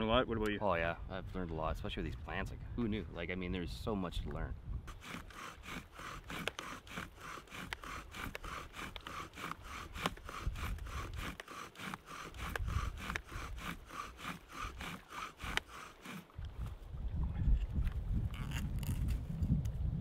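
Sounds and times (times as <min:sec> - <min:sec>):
bow drill spindle rasping: 0:04.9 - 0:16.4, 0:18.3 - 0:19.6.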